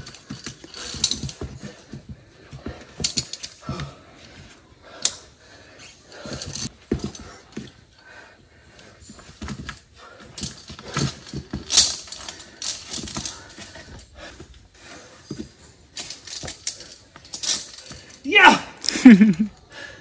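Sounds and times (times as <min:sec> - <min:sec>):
climbing gear clinking on steel cable: 0:00.0 - 0:19.6.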